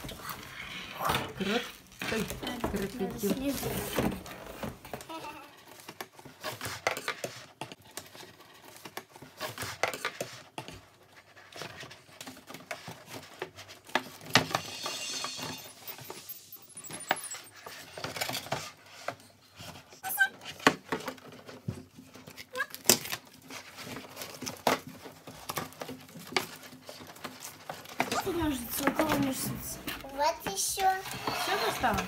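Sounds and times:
plastic parts clicking and rattling: 16.8s - 32.0s.

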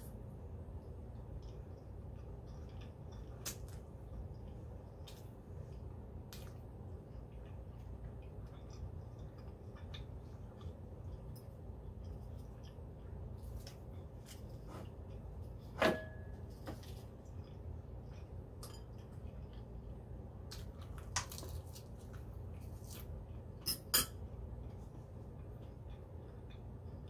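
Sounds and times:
fork clinking against ceramic bowl: 23.6s - 24.2s.

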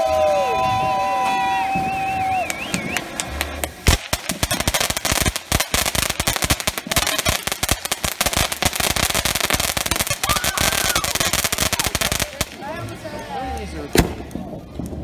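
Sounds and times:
firework fountain crackling: 0.0s - 15.0s.

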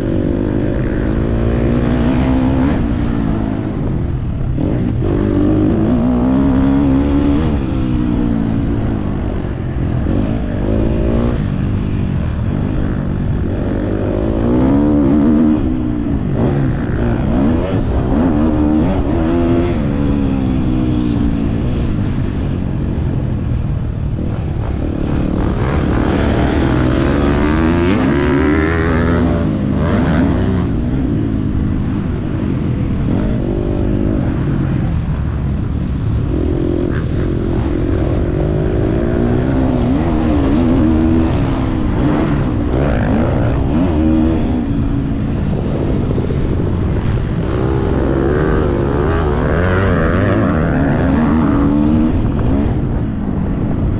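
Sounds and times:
motocross bike engine revving: 24.3s - 53.9s.

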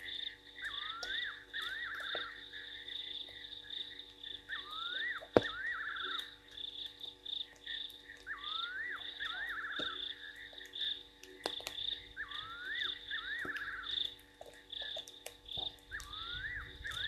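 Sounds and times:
frog trill: 0.0s - 14.2s, 15.6s - 17.0s
frogs calling: 0.0s - 17.0s.

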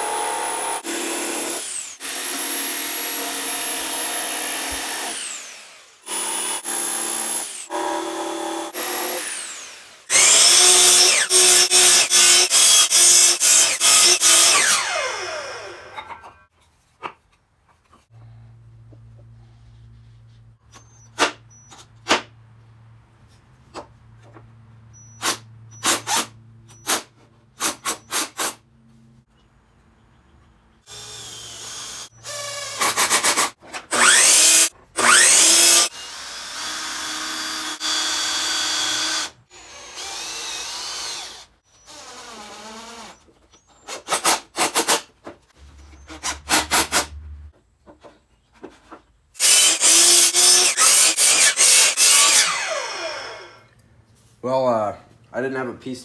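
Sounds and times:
miter saw cutting wood: 0.0s - 16.2s, 30.9s - 43.2s, 49.4s - 53.7s.

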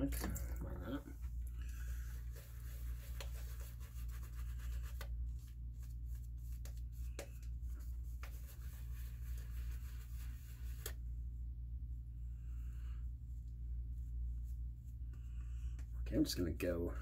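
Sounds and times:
steady low hum: 0.0s - 17.0s
brush rubbing lather: 1.2s - 11.0s.

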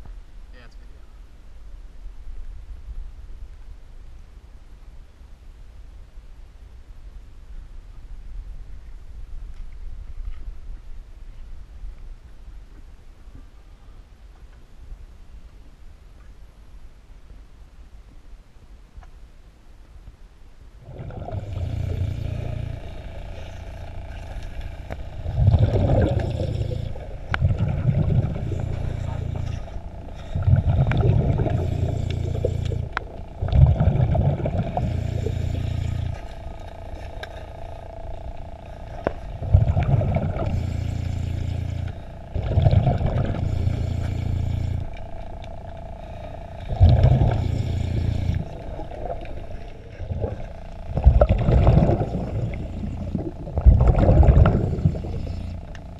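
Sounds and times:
water rushing and sloshing: 20.8s - 55.9s.

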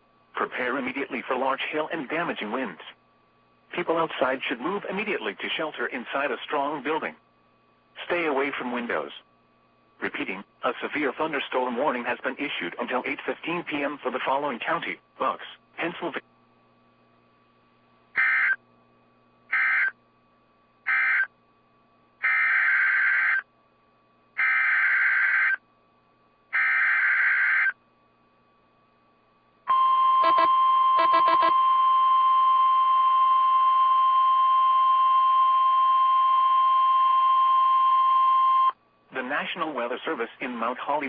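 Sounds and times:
steady alert tone: 30.2s - 31.6s
warbling data bursts: 30.2s - 31.6s.

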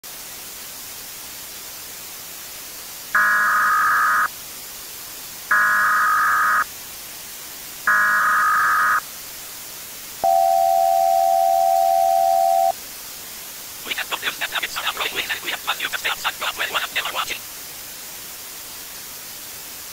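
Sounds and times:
static hiss: 0.0s - 19.9s
shrill data tones: 3.2s - 4.3s, 5.5s - 6.7s, 7.9s - 9.0s, 10.2s - 12.8s
steady alert tone: 7.9s - 9.0s.

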